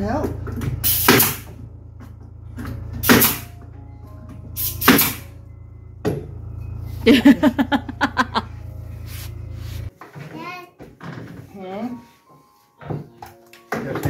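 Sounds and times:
machine humming: 0:00.0 - 0:09.9
sharp snap: 0:00.9 - 0:01.5, 0:03.0 - 0:03.5, 0:04.6 - 0:05.3.

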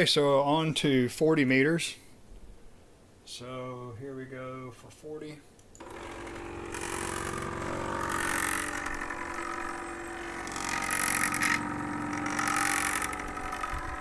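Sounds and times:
stepper motors whining: 0:05.8 - 0:14.0.

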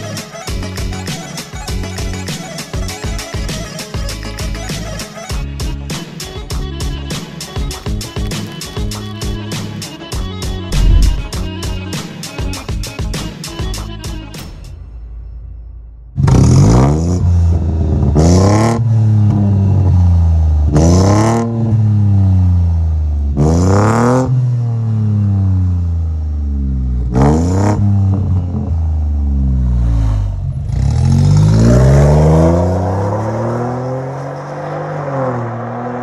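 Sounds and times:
car accelerating away: 0:10.7 - 0:11.4, 0:16.2 - 0:36.0
car engine revving: 0:10.7 - 0:11.4, 0:16.2 - 0:36.0.

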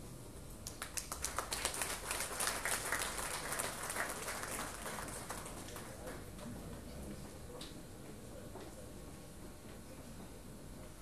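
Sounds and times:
audience applauding: 0:00.8 - 0:06.2.

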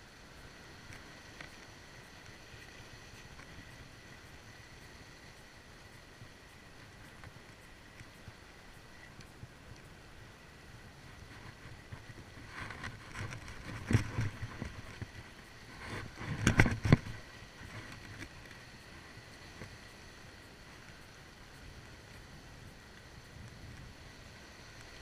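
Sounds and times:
fishing rod and reel knocking: 0:00.5 - 0:25.0.

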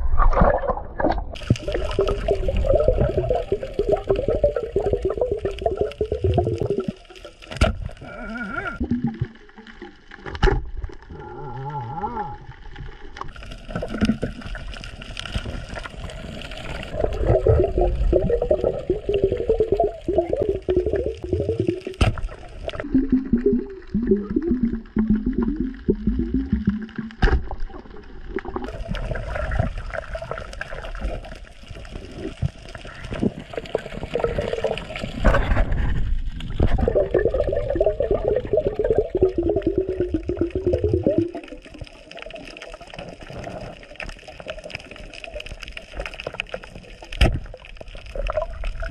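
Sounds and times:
underwater gurgling bubbles: 0:00.0 - 0:48.9.

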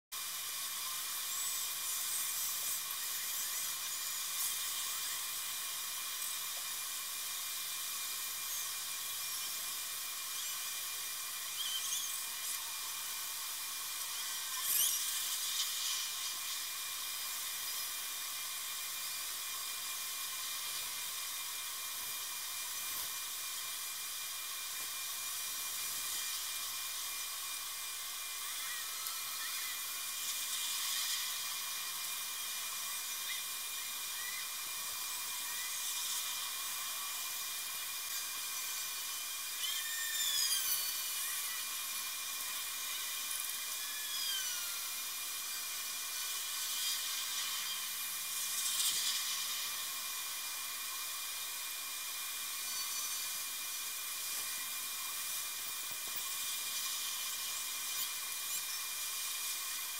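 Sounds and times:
high-pitched hiss: 0:00.2 - 0:59.9
faint chirps: 0:00.8 - 0:21.4, 0:25.5 - 0:49.8.

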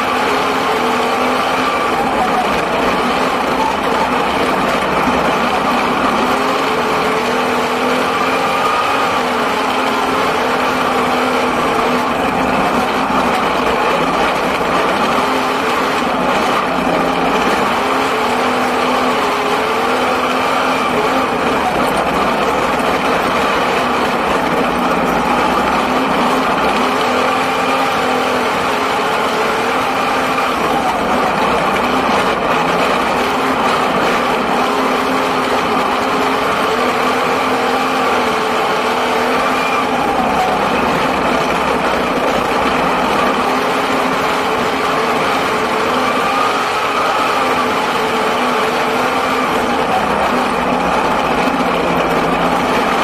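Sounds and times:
race car engine running hard: 0:00.0 - 0:53.0.

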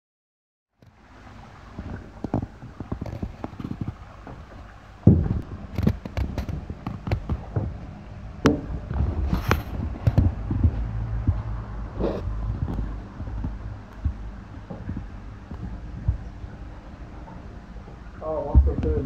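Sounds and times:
low rumble: 0:01.1 - 0:19.0
knocks and thumps: 0:01.8 - 0:16.5, 0:18.4 - 0:19.0.

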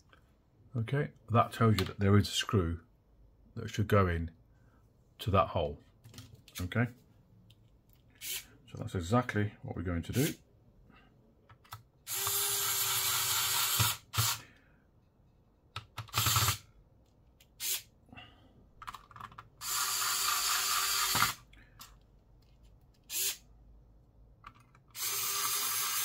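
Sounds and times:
electric screwdriver whining: 0:12.1 - 0:14.4, 0:16.1 - 0:16.6, 0:19.6 - 0:21.4, 0:23.1 - 0:23.4, 0:24.9 - 0:26.0.

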